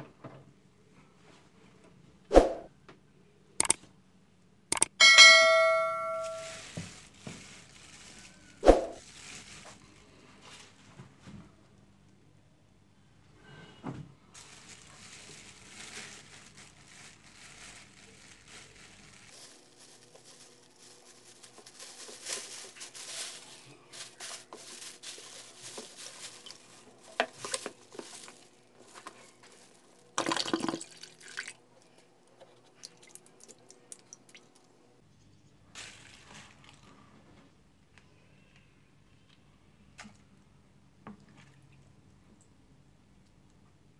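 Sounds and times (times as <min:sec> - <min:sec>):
wet plastic bags crinkling: 0:06.2 - 0:10.1, 0:14.3 - 0:31.6, 0:32.7 - 0:34.6, 0:35.7 - 0:36.9.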